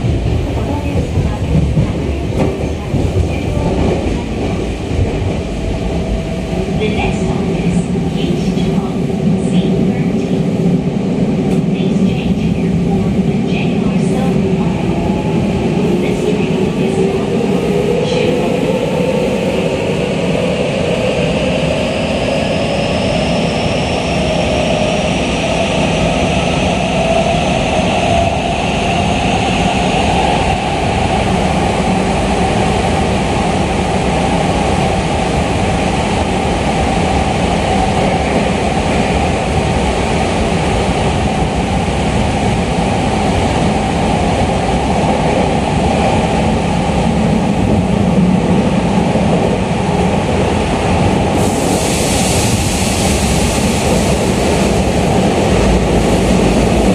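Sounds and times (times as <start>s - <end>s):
train wheels rumbling in tunnel: 0.0s - 56.9s.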